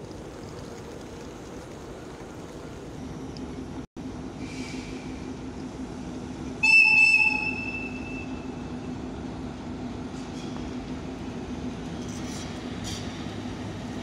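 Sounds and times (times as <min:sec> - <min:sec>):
low rumble of railway machinery: 0:00.0 - 0:14.0
locomotive whistle blast: 0:06.6 - 0:08.5.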